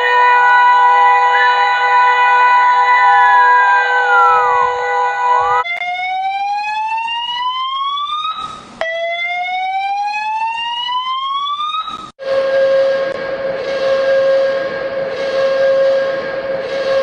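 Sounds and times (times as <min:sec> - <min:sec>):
steady held alert tone: 0:00.0 - 0:05.6
rising siren sweeps: 0:00.0 - 0:17.0.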